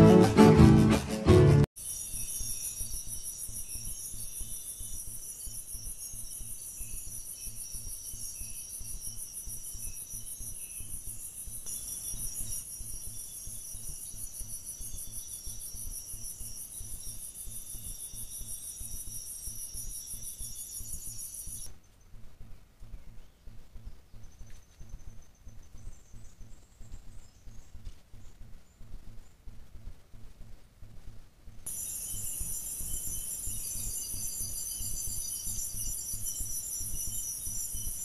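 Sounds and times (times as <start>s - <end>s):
crickets trilling: 1.8s - 21.7s, 31.7s - 38.0s
fainter lower insect trills: 1.8s - 22.2s, 31.7s - 38.0s.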